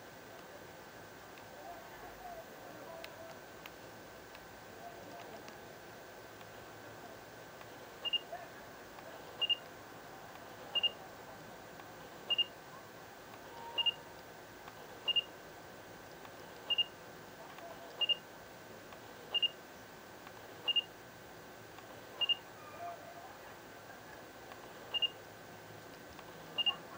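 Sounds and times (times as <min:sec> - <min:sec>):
camera double beep: 0:08.0 - 0:08.3, 0:09.4 - 0:09.6, 0:10.8 - 0:11.0, 0:12.3 - 0:12.5, 0:13.6 - 0:14.0, 0:15.1 - 0:15.3, 0:16.7 - 0:16.9, 0:18.0 - 0:18.2, 0:19.3 - 0:19.6, 0:20.7 - 0:20.9, 0:22.2 - 0:22.4, 0:24.9 - 0:25.2, 0:26.6 - 0:26.8.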